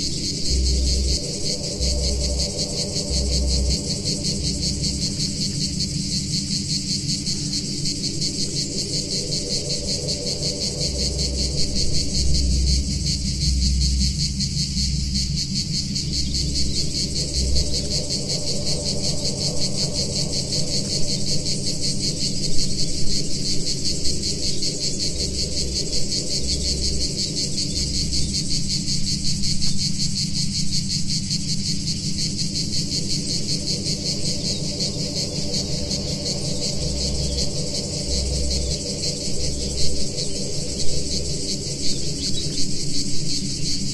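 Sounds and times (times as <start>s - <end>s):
cicadas buzzing: 0.0s - 43.9s
low synthesizer drone: 0.0s - 43.9s.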